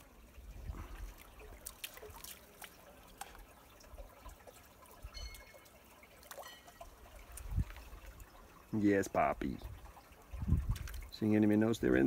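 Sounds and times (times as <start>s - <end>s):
creek trickling over rocks: 0.0s - 12.0s
faint water drips: 0.0s - 12.0s.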